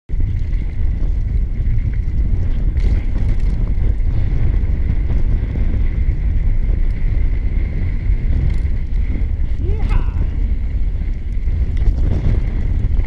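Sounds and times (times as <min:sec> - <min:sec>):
bike rolling on dirt trail: 0:00.1 - 0:13.0
wind rumble on microphone: 0:00.1 - 0:13.0.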